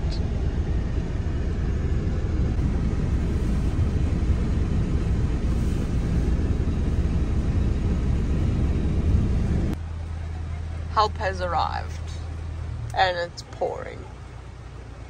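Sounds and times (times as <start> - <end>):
vehicle engine rumble: 0.0 - 15.0.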